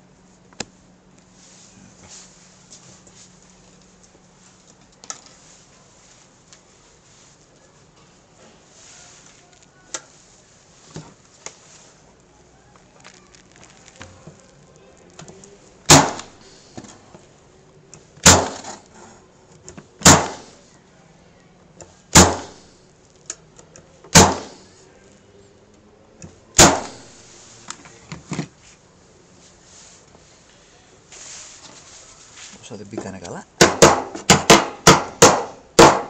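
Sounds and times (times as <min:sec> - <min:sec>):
staple gun firing: 0:15.9 - 0:16.3, 0:20.0 - 0:20.5, 0:22.1 - 0:22.6, 0:24.1 - 0:24.6, 0:26.6 - 0:27.0.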